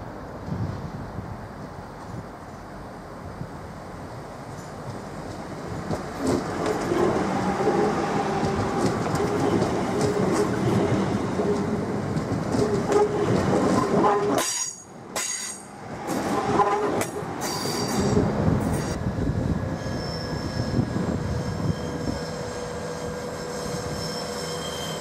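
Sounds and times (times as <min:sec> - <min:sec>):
train wheels clicking over rail joints: 0:04.5 - 0:19.0
train wheels squealing: 0:17.4 - 0:19.0, 0:19.6 - 0:25.0.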